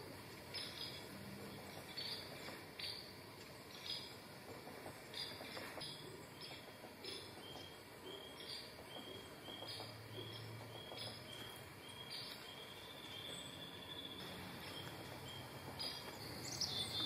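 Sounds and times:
faint background hiss: 0.0 - 17.0
crickets chirping: 4.9 - 17.0.

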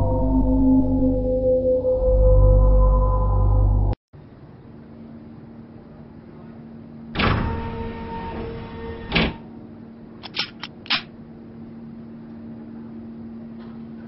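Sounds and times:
low steady hum: 0.0 - 14.0
pistol metallic clicks: 10.2 - 11.1.

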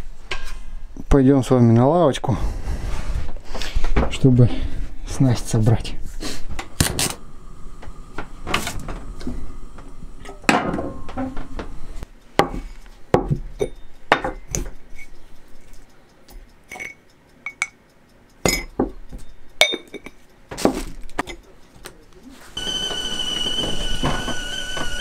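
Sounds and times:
mugs and spoons clinking: 16.7 - 17.8, 18.5 - 18.9, 19.6 - 20.2.

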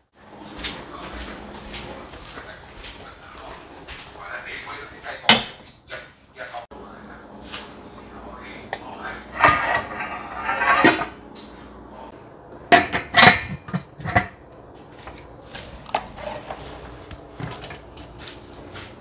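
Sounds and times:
metal pot and lid clattering: 9.4 - 11.2, 12.7 - 14.4.

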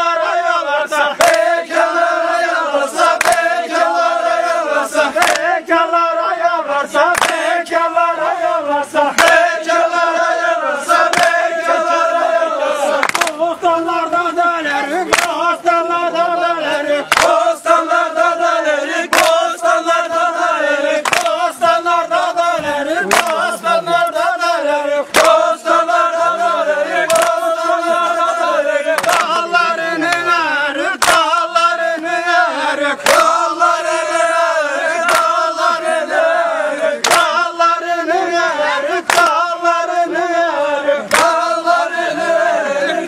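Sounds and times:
group singing folk tune: 0.0 - 43.0.

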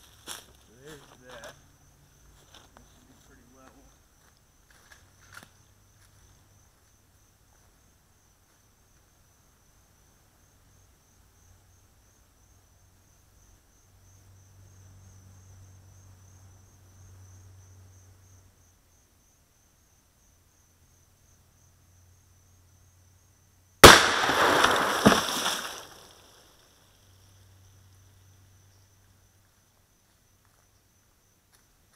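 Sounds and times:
high insect drone: 0.0 - 31.9
rifle shot crack: 23.8 - 26.2
water splashing: 23.8 - 26.2.

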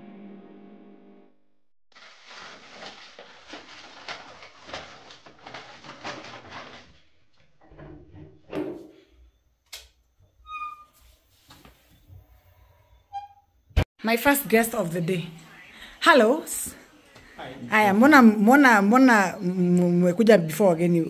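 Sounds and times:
dense crackling and rustling: 2.0 - 7.2
short squeaks: 10.4 - 11.2, 13.0 - 13.6.

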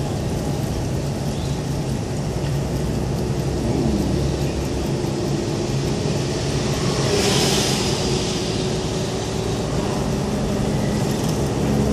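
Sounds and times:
car engine hum: 0.0 - 11.9
tyre and road noise: 0.0 - 11.9.

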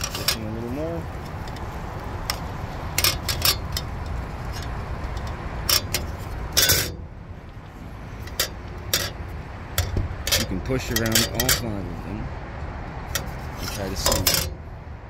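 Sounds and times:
metallic clatter: 0.0 - 7.6, 8.2 - 11.8, 13.1 - 14.6
metal fan blade clicking: 0.0 - 11.7, 13.0 - 14.6.

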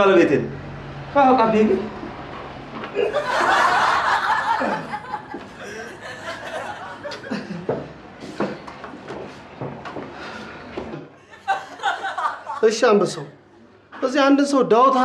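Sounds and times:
people laughing: 2.9 - 7.9, 11.2 - 13.4.

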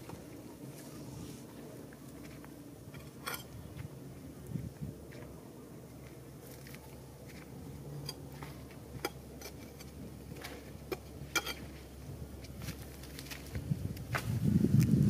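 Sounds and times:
low steady hum: 0.0 - 15.0
footsteps on dry grass: 12.5 - 15.0.

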